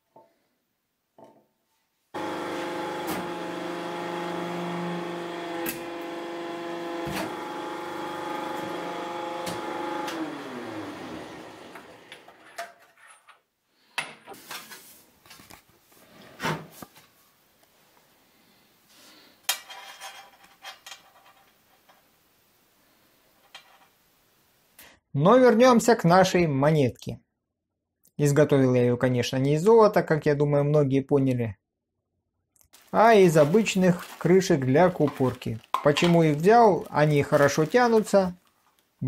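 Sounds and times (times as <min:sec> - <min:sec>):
electric motor humming: 0:02.2 - 0:12.3
motor spinning down: 0:02.2 - 0:12.3.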